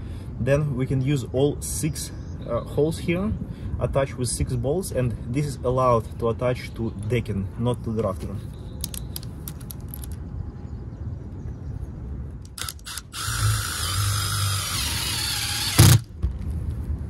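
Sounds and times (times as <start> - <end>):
power driver whining: 12.4 - 16.1.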